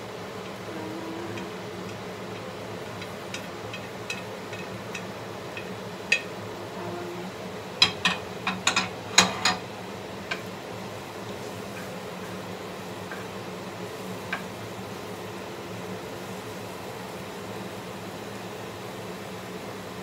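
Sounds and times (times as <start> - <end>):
steady low hum: 0.0 - 16.4
spatula knocking frying pan: 3.0 - 6.4, 7.8 - 9.6.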